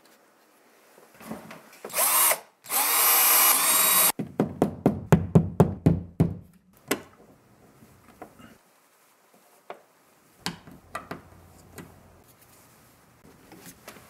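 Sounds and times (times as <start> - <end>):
cordless drill motor: 1.9 - 4.1.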